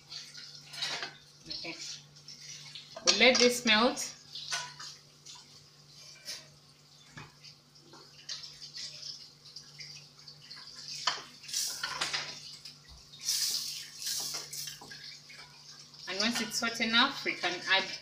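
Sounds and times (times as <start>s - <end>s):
butter sizzling in a pan: 0.0s - 18.0s.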